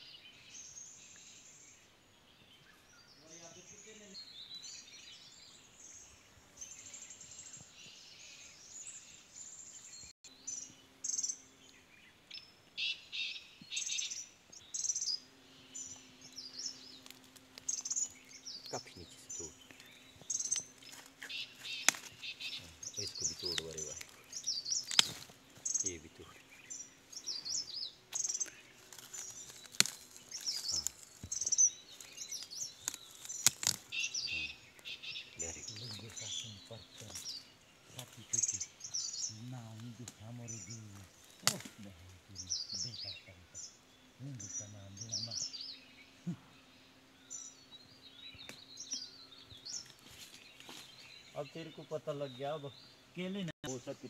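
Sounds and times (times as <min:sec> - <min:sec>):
wild birds chirping and singing: 0:00.0 - 0:54.0
rustling in undergrowth: 0:11.6 - 0:43.2, 0:48.1 - 0:52.6
plant stalk cracking: 0:20.5 - 0:22.3, 0:23.0 - 0:24.2, 0:24.8 - 0:25.4, 0:28.8 - 0:31.3, 0:32.0 - 0:34.0, 0:41.4 - 0:41.8.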